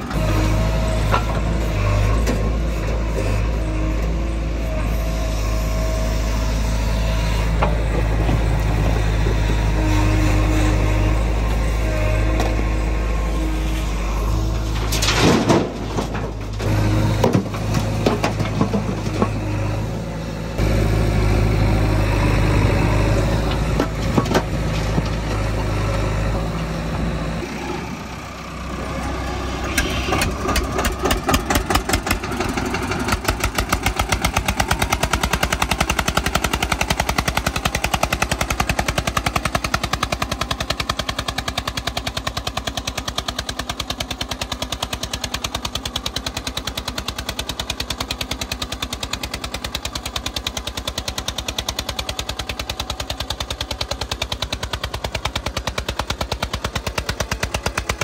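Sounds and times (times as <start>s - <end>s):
tractor engine chugging: 0.0s - 14.9s, 15.7s - 58.0s
diesel engine droning: 0.0s - 58.0s.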